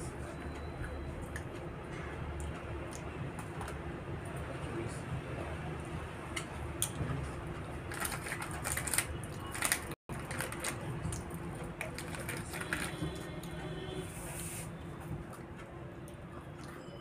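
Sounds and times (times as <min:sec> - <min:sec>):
plastic packet crinkling: 0:07.9 - 0:11.2, 0:11.8 - 0:13.0
biscuits being bitten and chewed: 0:15.2 - 0:17.0.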